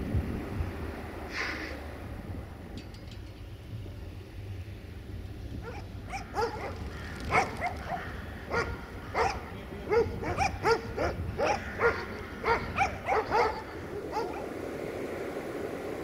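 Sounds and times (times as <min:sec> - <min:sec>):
low steady rumble: 0:00.0 - 0:16.0
dog barking: 0:05.6 - 0:14.5.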